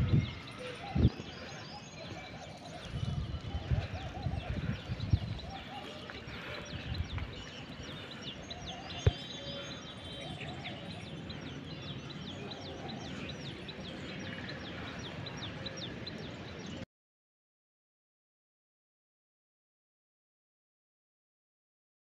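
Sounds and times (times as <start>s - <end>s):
birds chirping: 0.0s - 16.8s.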